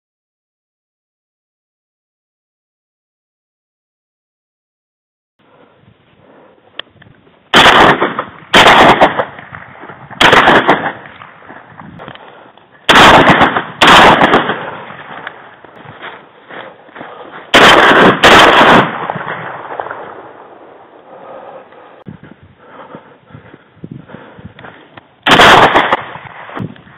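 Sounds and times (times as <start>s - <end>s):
shotgun blasts: 7.5s - 11.7s, 12.9s - 15.4s, 17.5s - 20.7s, 25.2s - 26.8s.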